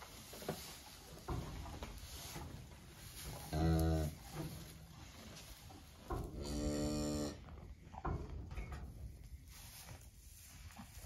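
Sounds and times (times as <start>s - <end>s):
cow mooing: 6.4s - 7.4s.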